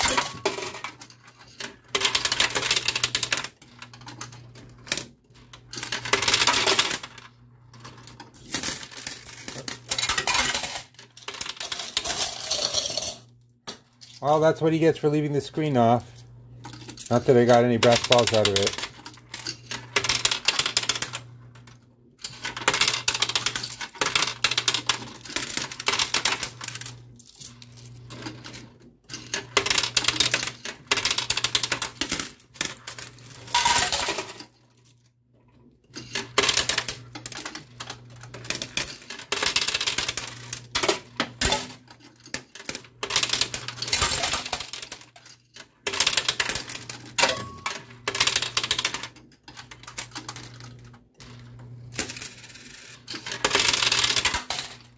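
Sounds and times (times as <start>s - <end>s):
coins clinking: 0.0s - 4.4s, 7.8s - 13.3s, 16.7s - 21.2s, 22.2s - 34.5s, 38.3s - 49.0s, 51.4s - 54.9s.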